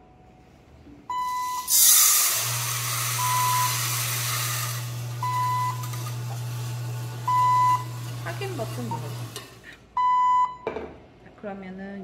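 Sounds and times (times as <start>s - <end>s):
low steady roaster hum: 0.0s - 9.8s
coffee beans pouring into drum: 1.3s - 9.6s.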